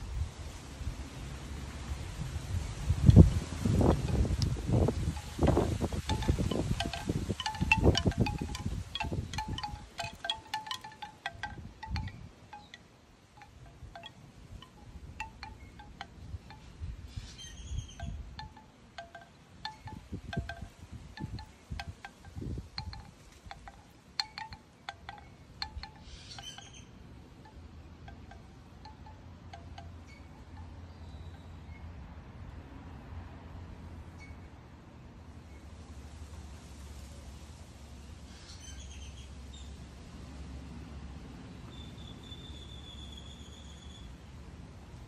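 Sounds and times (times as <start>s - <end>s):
wind buffeting microphone: 2.0s - 12.4s, 19.6s - 24.6s
bamboo wind chime clacking: 3.1s - 31.9s.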